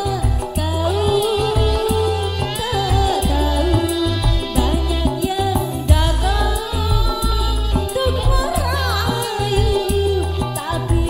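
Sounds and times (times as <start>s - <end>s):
live band playing: 0.0s - 11.0s
woman singing: 0.0s - 11.0s
sharp drum hits: 5.7s - 8.7s.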